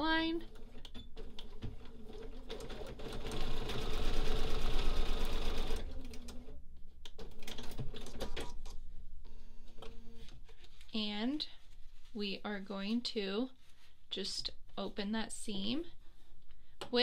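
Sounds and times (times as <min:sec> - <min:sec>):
sewing machine stitching: 0:00.4 - 0:06.6.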